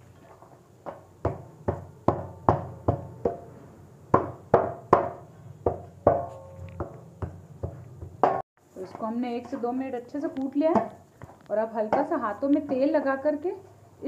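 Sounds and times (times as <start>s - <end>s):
metal pestle pounding on steel plate: 1.2s - 3.4s, 4.1s - 8.4s.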